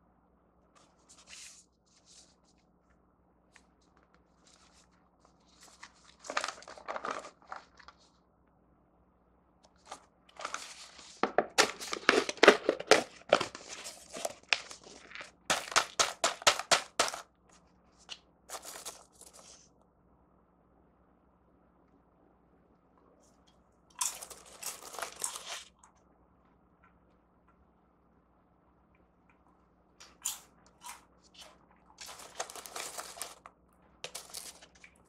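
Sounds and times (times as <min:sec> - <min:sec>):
paper cup rustling: 0:00.8 - 0:02.6, 0:03.6 - 0:08.1, 0:09.7 - 0:19.6, 0:31.2 - 0:35.0
foil lid crinkling: 0:04.4 - 0:08.1, 0:09.8 - 0:17.3, 0:18.5 - 0:19.6, 0:24.0 - 0:25.8, 0:31.4 - 0:34.9.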